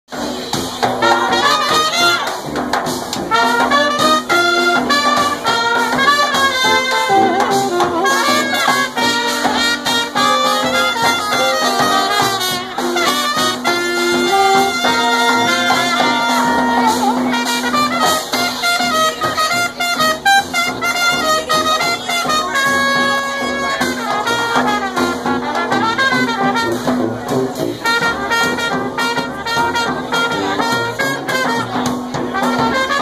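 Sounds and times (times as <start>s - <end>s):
bass drum beat: 0.1s - 33.0s
trumpets: 0.1s - 33.0s
sousaphone bass line: 0.2s - 19.4s
tenor saxophone: 1.0s - 2.5s, 3.2s - 33.0s.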